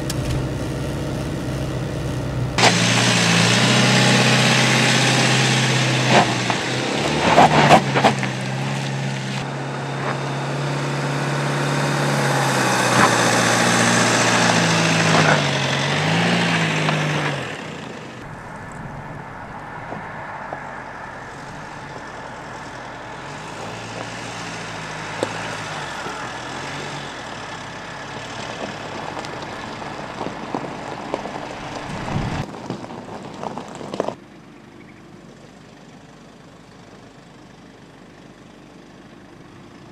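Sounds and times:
car engine at low revs: 0.0 - 39.9
stones crunching under tyres: 2.6 - 9.5, 18.1 - 34.3.

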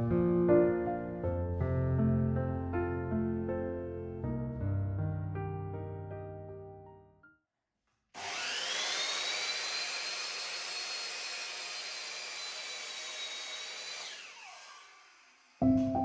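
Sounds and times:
mitre saw motor whining: 8.2 - 15.6.

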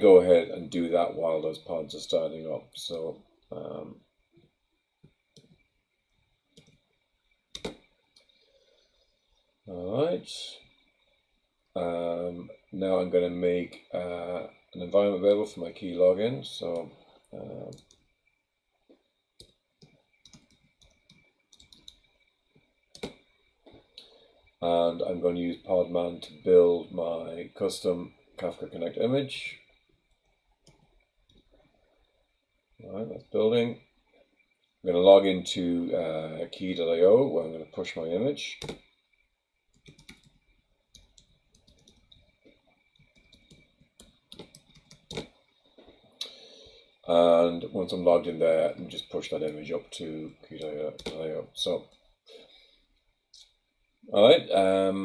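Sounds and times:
faint keyboard typing: 1.6 - 9.4, 14.8 - 18.2, 18.8 - 26.5, 27.8 - 31.8, 37.9 - 47.0, 47.8 - 53.6
computer keyboard keystrokes: 7.5 - 7.8, 19.4 - 22.0, 23.0 - 23.2, 38.6 - 38.8, 39.8 - 40.4, 41.0 - 42.2, 43.0 - 45.4, 51.0 - 51.2.

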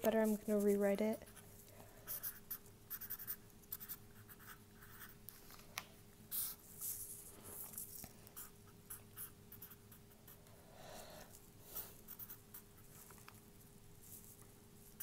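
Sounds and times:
marker scratching on paper: 0.0 - 5.2, 6.3 - 7.0, 8.4 - 10.4, 11.8 - 13.0
faint steady hum: 0.0 - 15.0.

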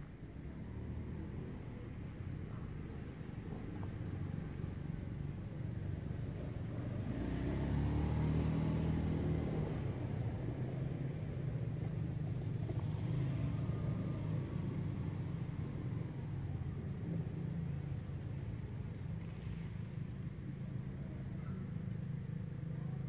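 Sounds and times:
vehicle engine humming: 0.0 - 23.0.

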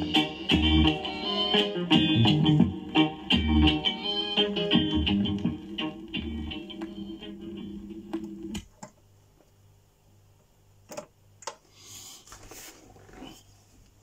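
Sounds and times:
reggae music on a turntable: 0.0 - 8.6.

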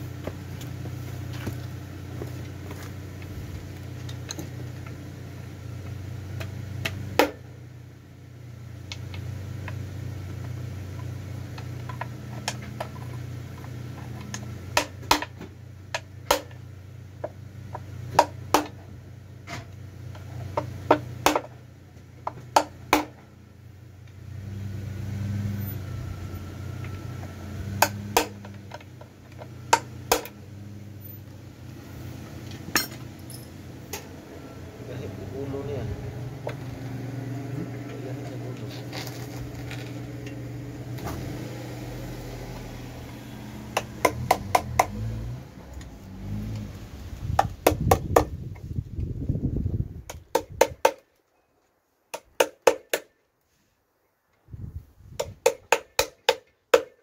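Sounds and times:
vehicle engine humming: 0.0 - 50.7
hand tools clinking on metal: 32.7 - 33.6.

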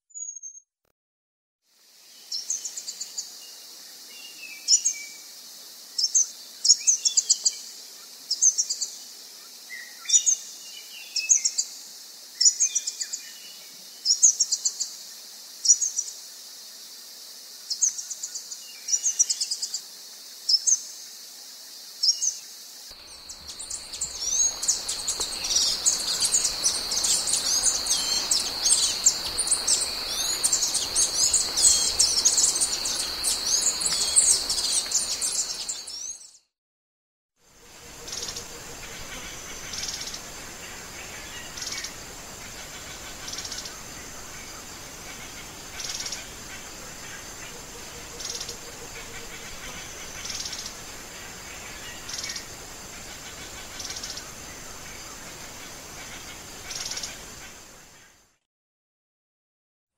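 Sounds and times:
background hiss: 1.7 - 36.2, 37.4 - 58.3
dense high twittering: 22.9 - 36.1
bird calling thin high phrases: 22.9 - 36.3.

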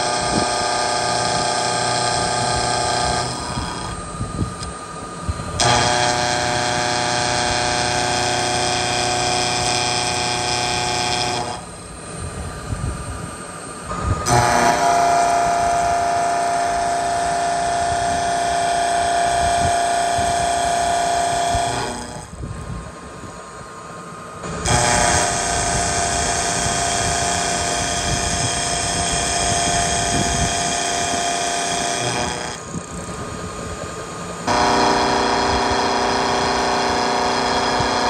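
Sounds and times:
milling cutter whine cutting steel: 0.0 - 38.0.

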